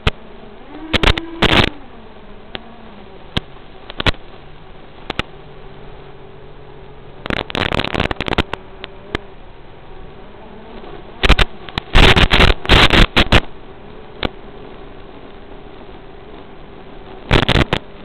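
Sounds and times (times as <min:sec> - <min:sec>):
static clicks and crackles: 0:00.0 - 0:18.0
quadcopter motors buzzing: 0:00.3 - 0:03.2.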